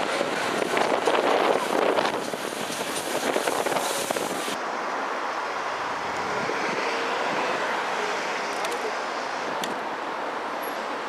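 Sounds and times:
wind on microphone: 0:00.0 - 0:04.6, 0:05.8 - 0:07.8
steam hissing: 0:00.3 - 0:04.6.

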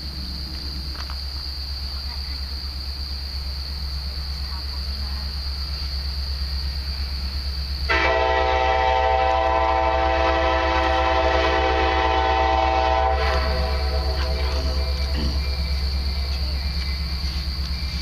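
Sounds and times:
low locomotive rumble: 0:00.0 - 0:18.0
locomotive air horn blast: 0:07.9 - 0:15.0.

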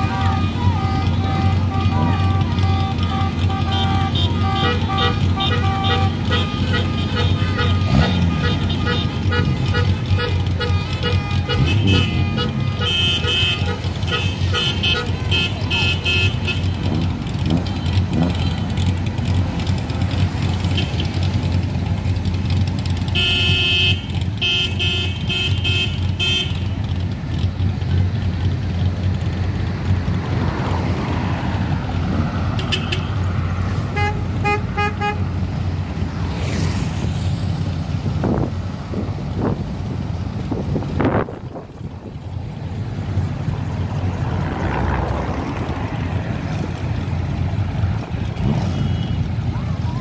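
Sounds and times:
car horns honking: 0:00.0 - 0:21.6, 0:22.8 - 0:27.4, 0:32.5 - 0:41.3, 0:45.8 - 0:50.0
idling car engines rumbling: 0:00.0 - 0:50.0.

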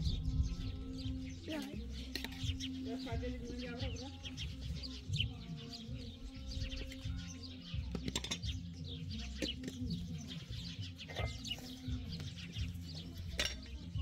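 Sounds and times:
small birds chirping: 0:00.0 - 0:14.0
soft background music: 0:00.0 - 0:14.0
plates and cutlery clinking: 0:13.3 - 0:13.7.

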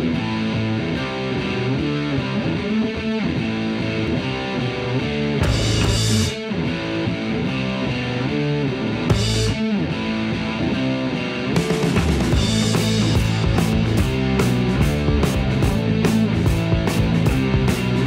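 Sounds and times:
guitar background music: 0:00.0 - 0:18.0.

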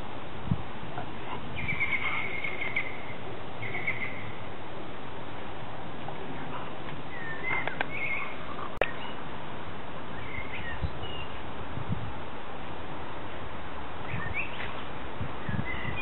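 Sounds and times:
steady outdoor hiss: 0:00.0 - 0:16.0
small birds chirping: 0:01.0 - 0:04.5, 0:06.4 - 0:09.3, 0:10.1 - 0:11.5, 0:14.0 - 0:16.0.

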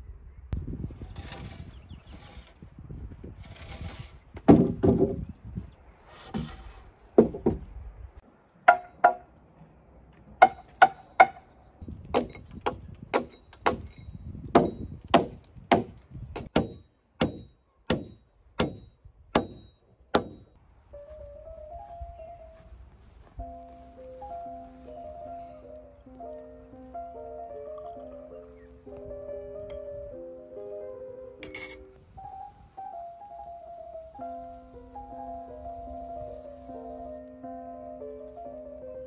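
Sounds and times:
firewood chopping: 0:04.4 - 0:05.2, 0:08.6 - 0:09.3, 0:10.4 - 0:20.5
music: 0:20.9 - 0:39.0.

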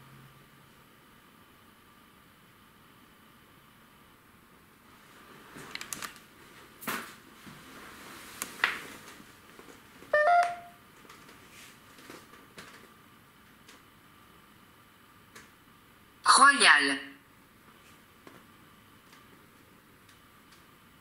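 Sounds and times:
short electronic beep: 0:10.2 - 0:10.8.

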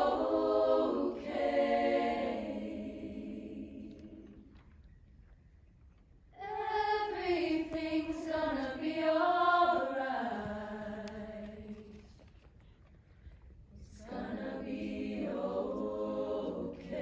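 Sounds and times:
women singing in harmony: 0:00.0 - 0:04.5, 0:06.4 - 0:11.9, 0:13.8 - 0:17.0.

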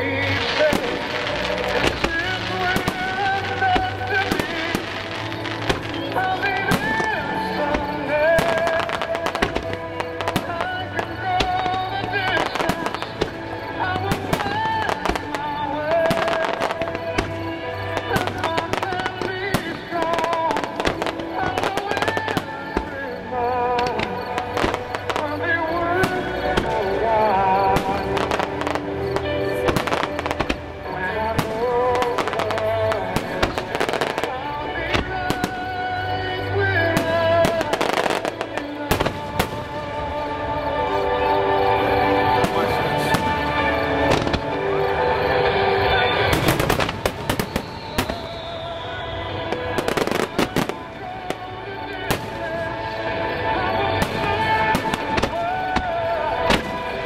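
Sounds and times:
firework bangs and crackles: 0:00.0 - 0:57.0
loud music with wavering melody: 0:00.0 - 0:57.0.

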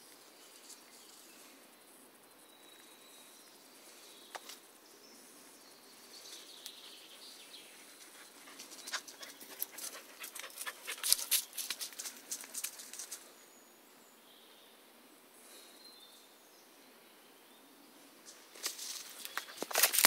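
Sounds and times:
dog panting: 0:08.0 - 0:12.0.

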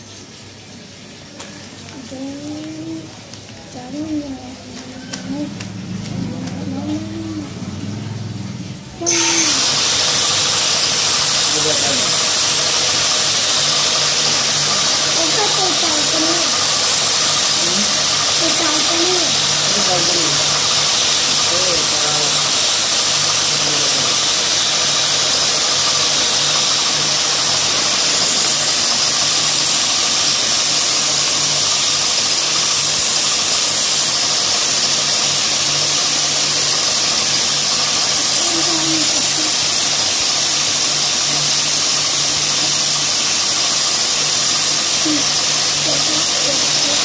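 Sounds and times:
yarn winding machine whirring: 0:01.7 - 0:47.0.

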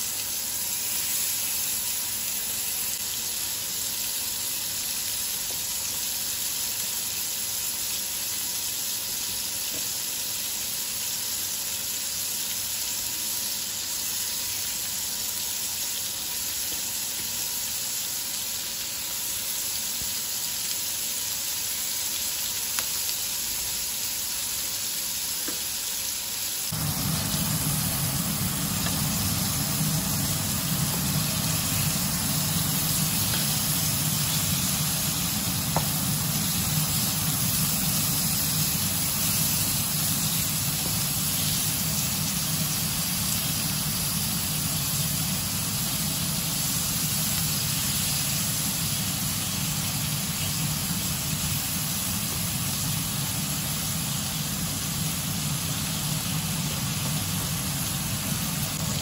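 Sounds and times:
food sizzling in oil: 0:00.0 - 0:59.0
low steady hum: 0:26.7 - 0:43.8.

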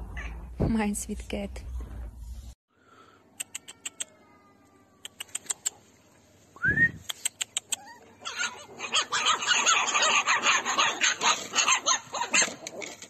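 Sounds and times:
sharp clicks: 0:05.0 - 0:05.8, 0:07.0 - 0:07.8
puppies yelping and squeaking: 0:07.1 - 0:13.0.

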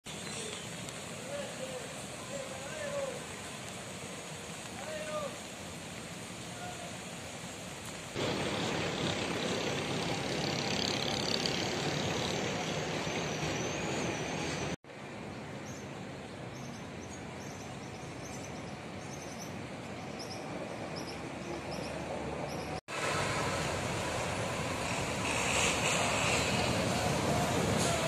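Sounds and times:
rainfall: 0:00.1 - 0:12.9, 0:22.7 - 0:28.0
distant traffic: 0:00.1 - 0:28.0
small birds chirping: 0:16.5 - 0:22.8.

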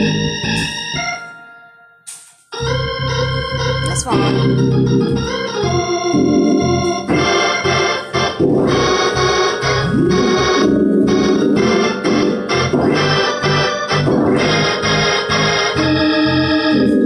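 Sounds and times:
organ chords: 0:00.0 - 0:17.0.

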